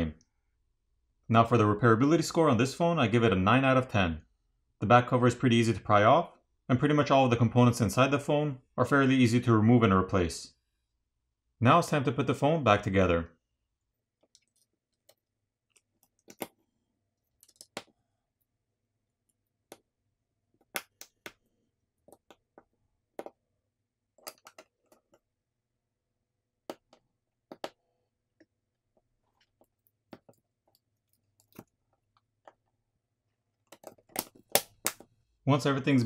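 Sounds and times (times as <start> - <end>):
small clicks and taps: 17.3 - 18.0, 24.2 - 25.3, 26.7 - 27.8, 28.4 - 32.8, 33.6 - 35.1.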